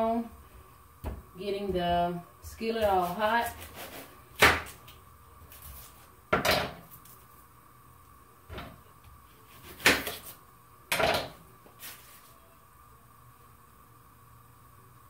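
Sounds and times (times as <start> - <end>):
kitchen items knocking and banging: 6.3 - 6.9, 10.9 - 11.4.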